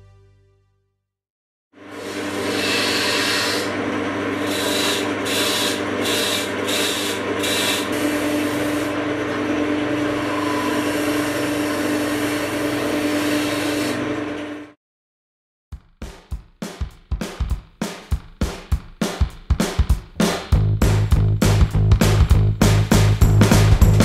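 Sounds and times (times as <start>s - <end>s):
tool scraping spinning wood: 1.8s - 14.5s
wood lathe motor hum: 1.8s - 14.7s.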